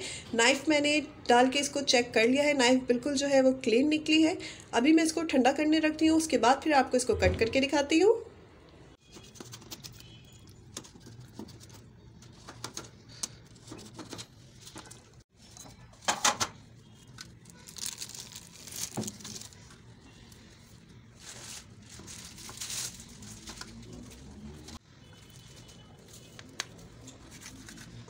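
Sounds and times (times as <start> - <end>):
paper crinkling and tearing: 17.0 - 28.0.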